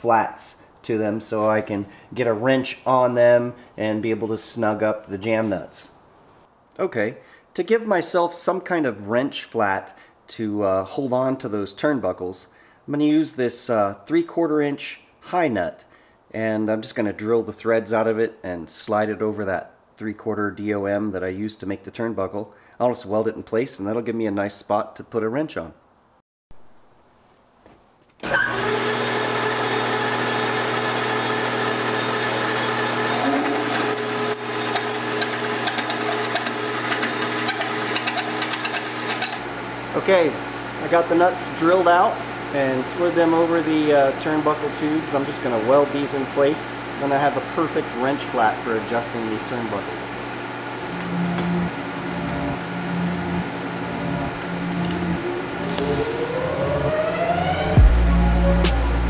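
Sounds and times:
metal lathe running: 28.3s - 39.4s
welding arc buzzing: 28.3s - 39.9s, 50.4s - 56.9s
drill cutting threads ticking chatter: 28.6s - 39.4s
rising tone: 50.9s - 59.0s.

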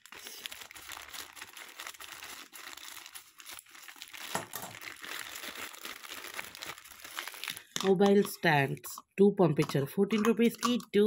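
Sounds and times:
plastic mailer crinkling: 0.0s - 8.4s.

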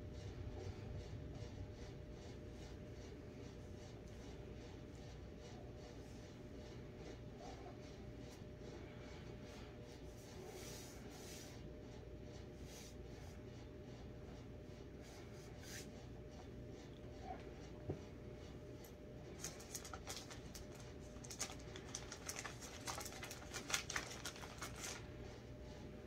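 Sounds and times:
steady low hum: 0.0s - 26.0s
hands rustling and clicking: 18.8s - 25.1s.

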